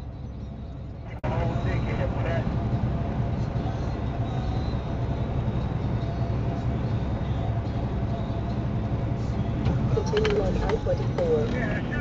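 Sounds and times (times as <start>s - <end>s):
truck engine drone: 0.0s - 12.0s.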